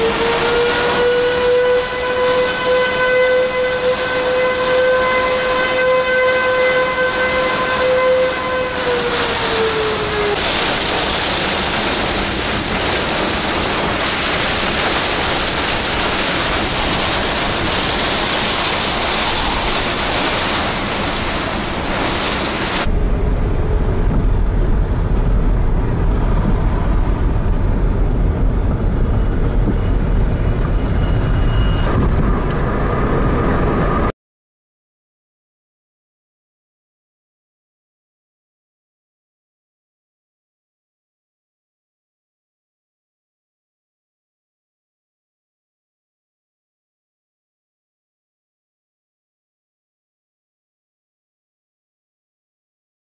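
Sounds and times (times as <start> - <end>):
storm warning siren: 0.0 - 34.1
wind: 0.0 - 34.1
heavy rain: 8.7 - 34.0
low rumble: 10.5 - 34.1.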